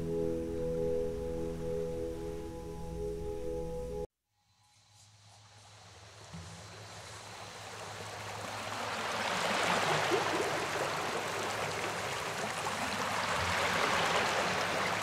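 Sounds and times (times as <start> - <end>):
faint low sustained tones: 0.0 - 4.1.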